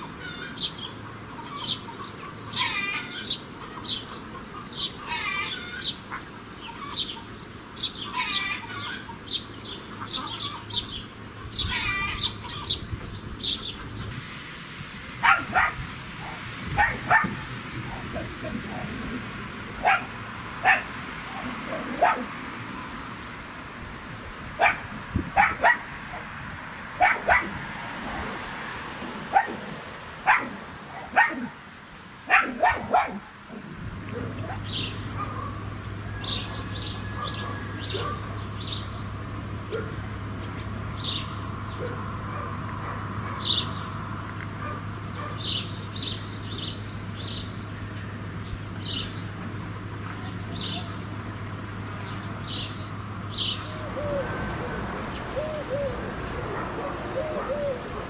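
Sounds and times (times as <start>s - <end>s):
small birds chirping: 0.0s - 14.2s, 32.3s - 54.4s
dog barking: 15.2s - 18.3s, 19.8s - 22.3s, 24.6s - 26.3s, 27.0s - 27.6s, 29.3s - 29.6s, 30.2s - 31.6s, 32.3s - 33.3s, 34.2s - 35.6s, 36.5s - 38.3s, 39.7s - 40.0s, 41.8s - 43.6s, 44.6s - 45.5s.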